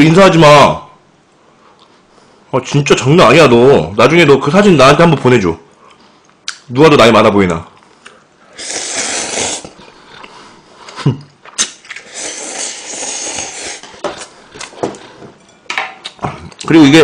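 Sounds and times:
person slurping noodles: 8.5 - 10.0, 12.0 - 14.3.

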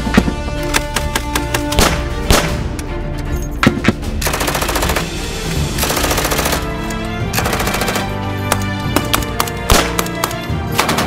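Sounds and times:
background music: 0.0 - 11.0
machine-gun fire: 4.2 - 5.2, 5.8 - 6.7, 7.4 - 8.2.

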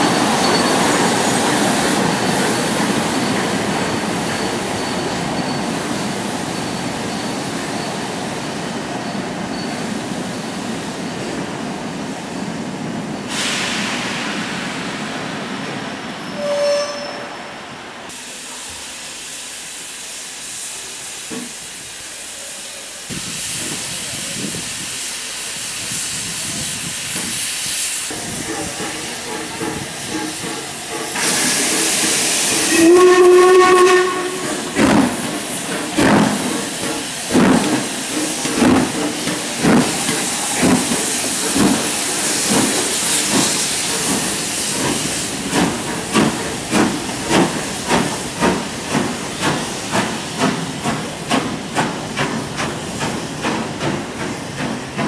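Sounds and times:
steam hissing: 0.0 - 11.3, 13.1 - 17.1, 18.1 - 55.0
steam whistle: 16.3 - 17.4, 32.6 - 34.8
steam locomotive exhaust beats: 18.1 - 55.0.

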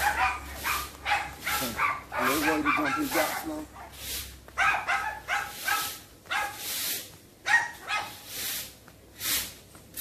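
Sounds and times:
dogs barking: 0.0 - 6.7, 7.4 - 8.3.

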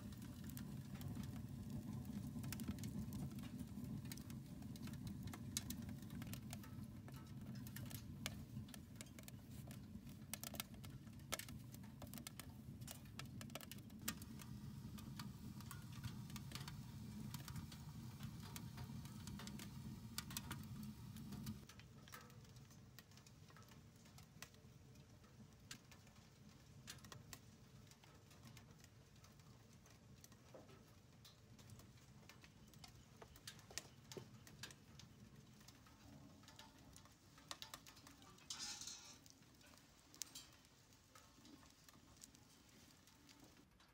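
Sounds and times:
wood fire crackling: 0.0 - 43.9.

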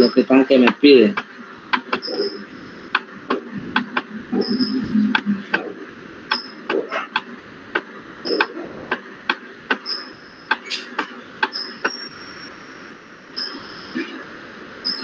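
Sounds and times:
high-pitched tones: 1.9 - 7.0.

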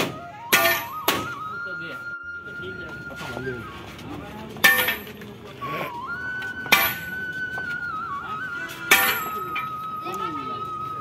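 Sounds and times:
sledgehammer striking metal: 0.0 - 1.3, 4.6 - 5.1, 6.7 - 7.1, 8.9 - 9.4
faint wavering melody: 0.2 - 11.0.

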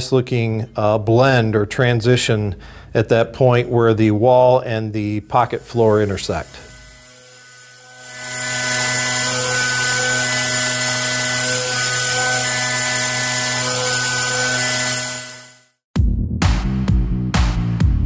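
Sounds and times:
milling spindle whine: 4.3 - 15.7
high hiss: 5.0 - 11.4.

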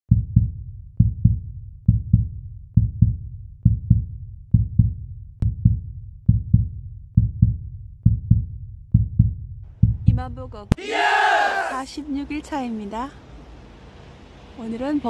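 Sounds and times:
heartbeat thumps: 0.1 - 10.8.

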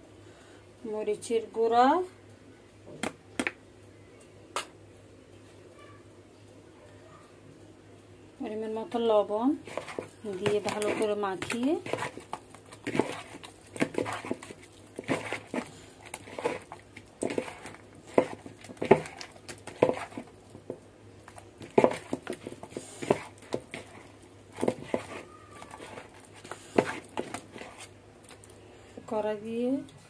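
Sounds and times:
wet squelches of kneading fish: 8.9 - 29.4.

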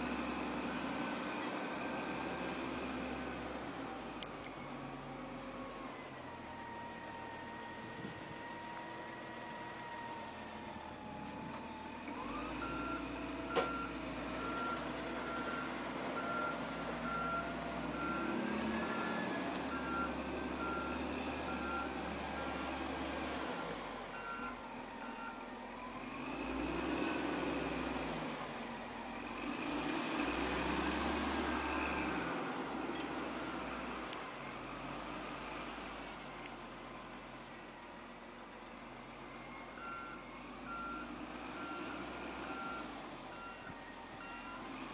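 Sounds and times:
loader engine revving: 0.0 - 5.9, 7.3 - 36.3, 39.7 - 44.9
reversing alarm beeping: 7.4 - 10.0, 12.4 - 22.8, 23.5 - 25.4, 39.5 - 44.6.

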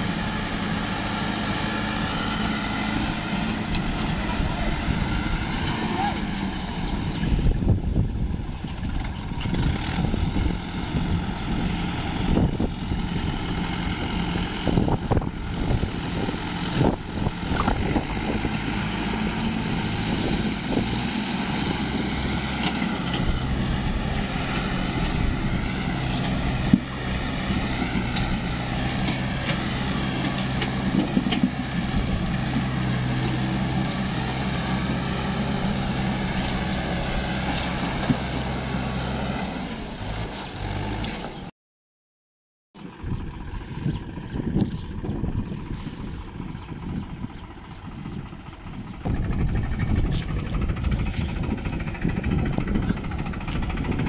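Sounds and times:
tractor engine under load: 0.0 - 41.5, 42.8 - 54.0.

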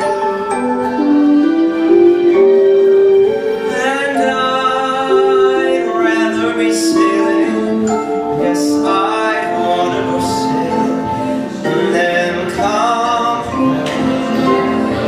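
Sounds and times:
man singing into a microphone: 3.7 - 15.0.

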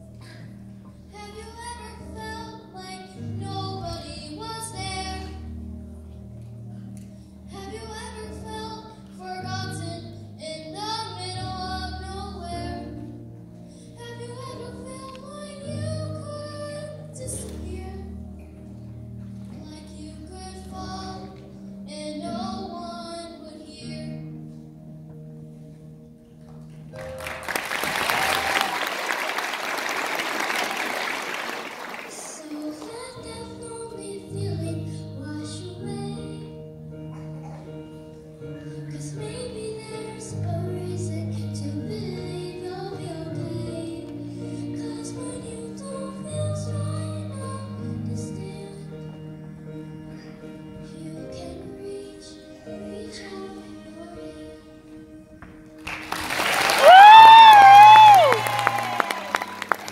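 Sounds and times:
girl singing into a microphone: 0.0 - 5.6, 6.7 - 24.7, 32.1 - 55.7
audience applause: 27.0 - 32.8, 55.8 - 59.9.

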